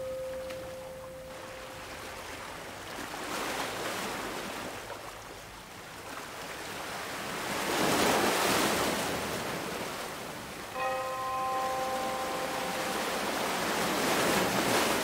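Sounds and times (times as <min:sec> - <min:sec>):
ocean surf washing in: 0:07.5 - 0:15.0.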